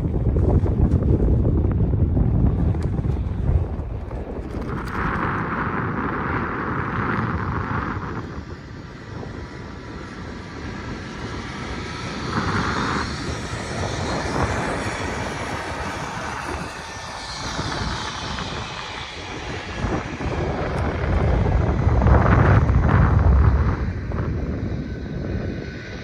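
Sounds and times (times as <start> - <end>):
cable car rumbling: 0.0 - 24.6.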